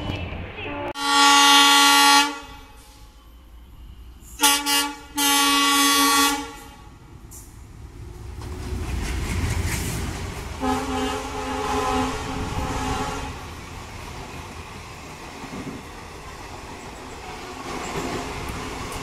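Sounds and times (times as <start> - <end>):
train rumbling past: 0.0 - 19.0
locomotive horn: 0.6 - 3.2, 4.4 - 7.0, 10.6 - 13.5.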